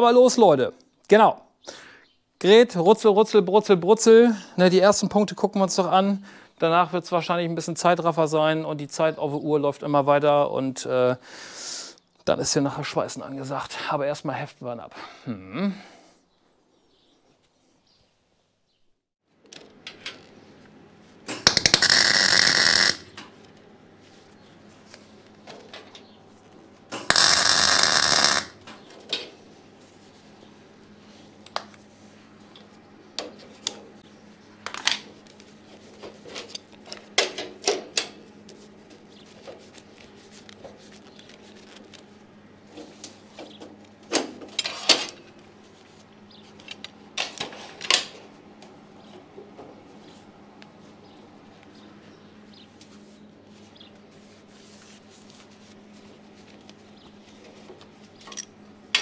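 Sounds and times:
welding arc crackling: 0:21.3 - 0:23.2, 0:26.9 - 0:28.6.

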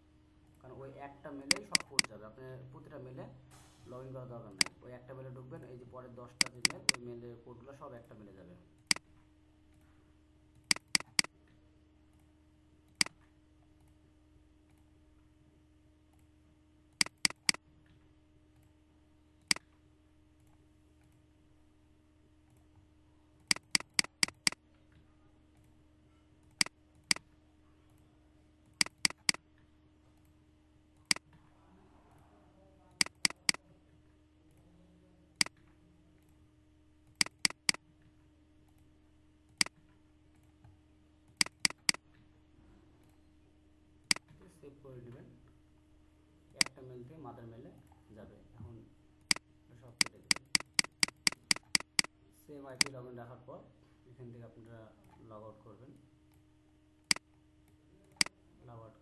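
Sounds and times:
faint steady hum: 0:00.0 - 0:59.0
computer mouse clicking: 0:01.5 - 0:02.1, 0:04.5 - 0:04.8, 0:06.4 - 0:07.0, 0:10.5 - 0:11.3, 0:16.9 - 0:18.7, 0:23.4 - 0:25.7, 0:28.6 - 0:30.4, 0:33.0 - 0:33.6, 0:37.0 - 0:37.8, 0:39.5 - 0:42.1, 0:49.2 - 0:52.1, 0:52.8 - 0:53.0, 0:57.1 - 0:58.4.

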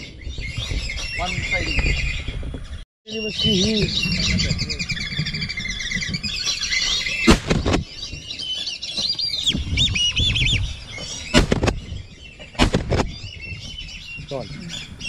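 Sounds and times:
whistling ducks calling: 0:03.1 - 0:15.0
loud sharp bangs: 0:07.2 - 0:07.9, 0:11.3 - 0:11.9, 0:12.5 - 0:13.2.

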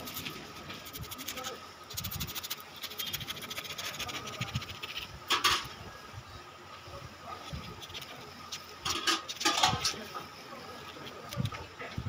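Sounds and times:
knife scraping fruit pulp: 0:00.0 - 0:05.7, 0:07.5 - 0:10.0.

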